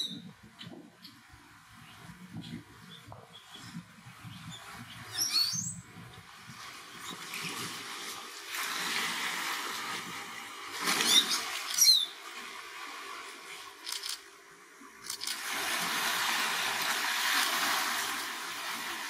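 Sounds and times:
bird squeaky calls: 5.1s - 5.7s, 11.0s - 12.1s
water rushing over rocks: 15.2s - 19.0s.

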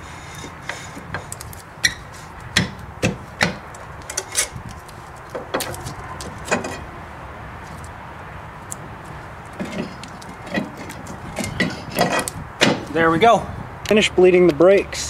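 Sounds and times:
brake drum knocking and scraping: 0.0s - 6.9s, 9.5s - 13.3s.

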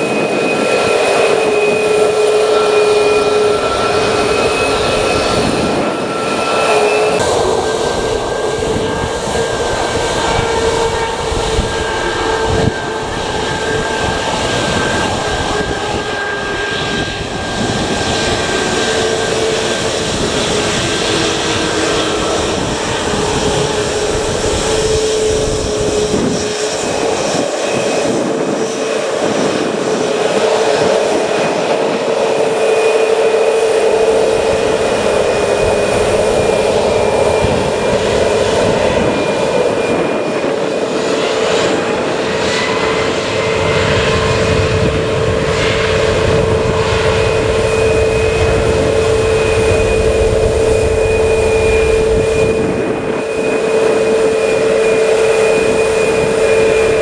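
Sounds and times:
jet engine whine: 0.0s - 57.0s.

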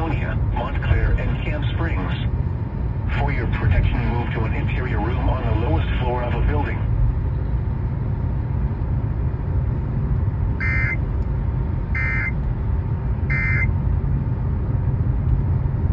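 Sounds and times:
low rumble inside car: 0.0s - 15.9s
short electronic beeps: 10.6s - 11.0s, 12.0s - 12.4s, 13.3s - 13.7s.

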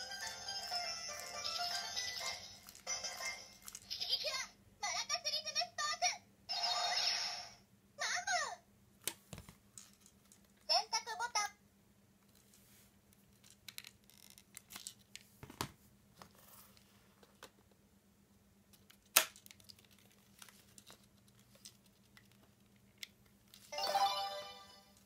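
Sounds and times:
plastic toy parts clicking: 13.4s - 15.1s
sharp plastic snap: 19.1s - 19.5s.

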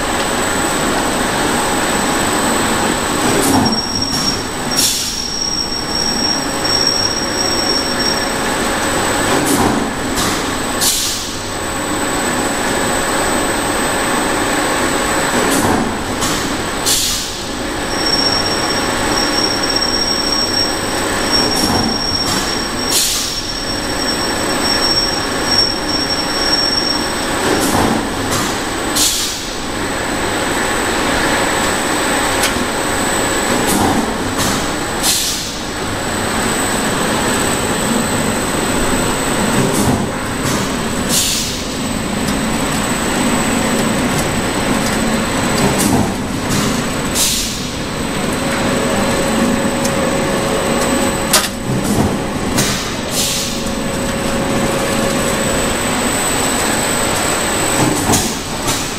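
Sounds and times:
clattering machine noise: 36.4s - 58.9s.

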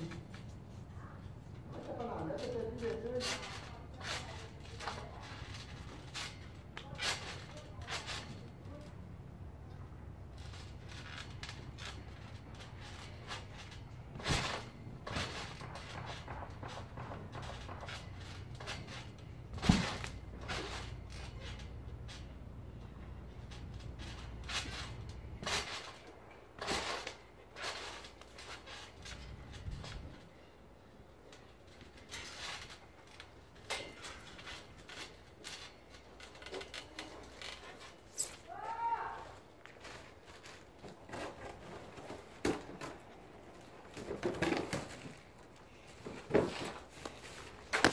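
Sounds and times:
trampoline spring and frame clicks: 2.2s - 8.9s, 10.3s - 30.5s, 31.2s - 45.4s
safety net rustling: 10.2s - 47.9s
trampoline landing thud: 10.4s - 21.8s, 23.5s - 30.2s.

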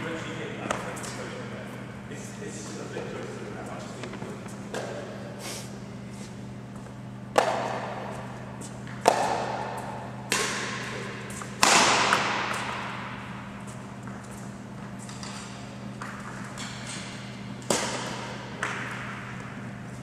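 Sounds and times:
racket hitting shuttlecock: 7.3s - 13.3s, 16.0s - 19.5s.

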